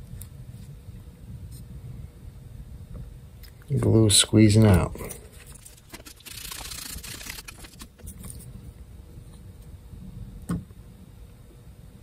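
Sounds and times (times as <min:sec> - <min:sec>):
paper and towel rustling: 0:05.2 - 0:08.4.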